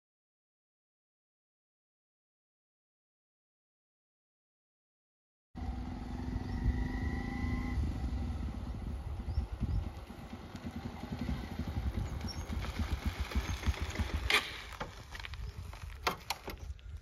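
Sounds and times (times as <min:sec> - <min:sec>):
motorcycle engine approaching: 0:05.6 - 0:15.7.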